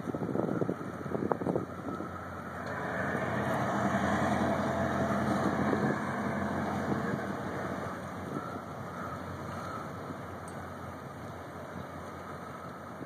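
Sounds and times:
ship diesel engines droning: 0.1 - 13.0.

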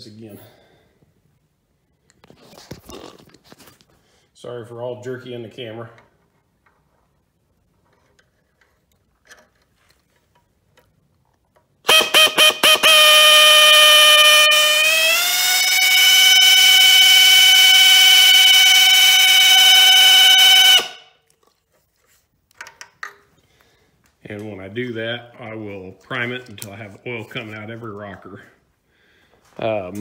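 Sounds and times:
electric drill motor whine: 13.6 - 21.0.

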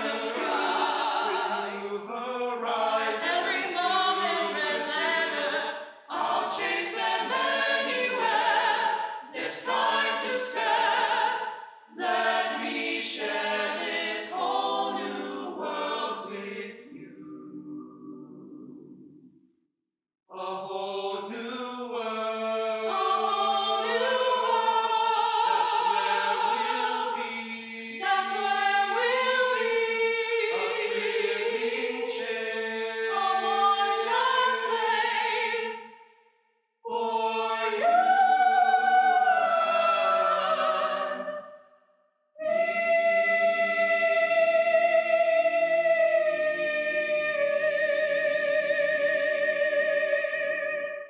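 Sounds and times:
a cappella choir singing chords: 0.0 - 19.3, 20.3 - 36.0, 36.8 - 41.7, 42.4 - 51.0.

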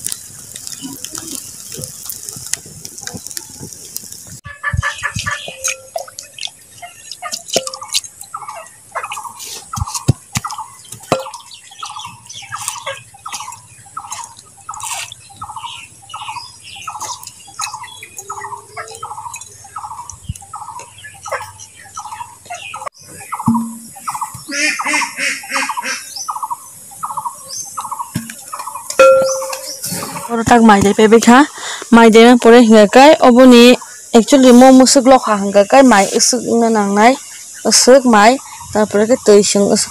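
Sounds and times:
wood fire hissing: 0.0 - 21.9, 29.6 - 39.0
bird calling: 4.4 - 30.6.

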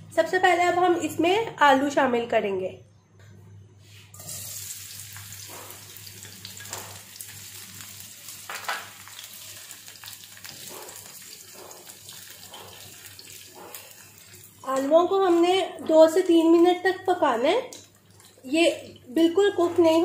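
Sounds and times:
potatoes sizzling in oil: 4.2 - 16.8.

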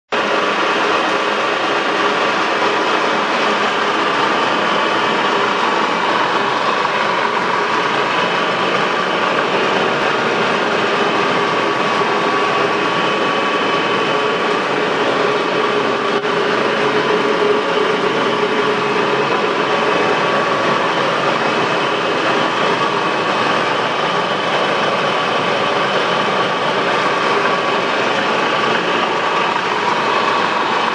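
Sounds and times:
lathe running: 0.1 - 30.9
gear whine: 0.2 - 30.9.

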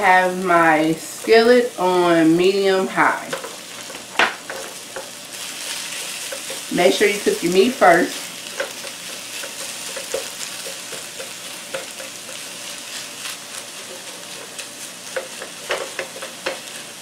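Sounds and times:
meat sizzling in a skillet: 0.0 - 17.0
spatula scraping and tapping pan: 3.3 - 6.8, 8.4 - 16.8.

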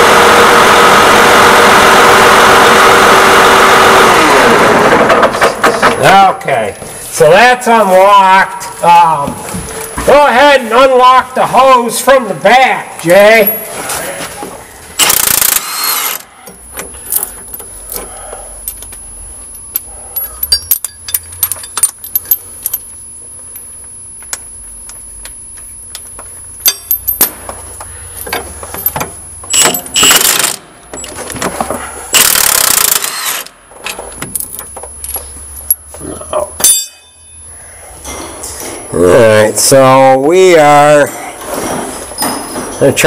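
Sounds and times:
impact wrench hammering: 15.0 - 17.7, 19.7 - 22.4, 26.6 - 27.6, 28.2 - 31.1, 32.1 - 33.6, 36.4 - 37.4
clinks of sockets and metal tools: 19.7 - 22.8, 26.6 - 27.6.

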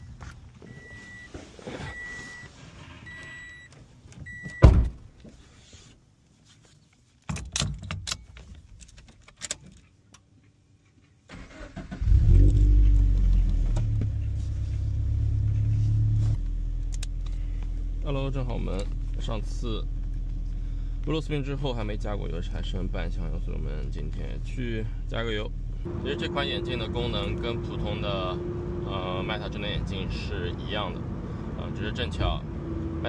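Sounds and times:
car door slamming: 4.6 - 5.1
car engine starting and idling: 11.3 - 33.0.

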